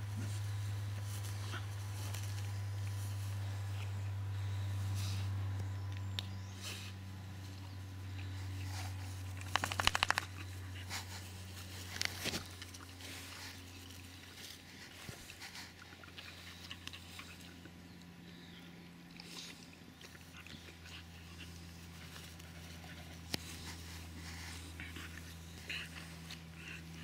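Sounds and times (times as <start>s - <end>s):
rustling in grass: 0.0s - 17.4s, 21.2s - 27.0s
steady low hum: 0.0s - 27.0s
quick clicks: 9.4s - 10.4s.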